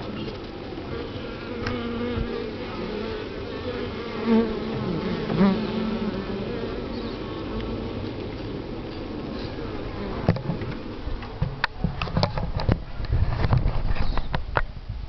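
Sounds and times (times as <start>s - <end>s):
bees buzzing past: 0.0s - 11.2s
bee colony humming: 0.0s - 13.0s.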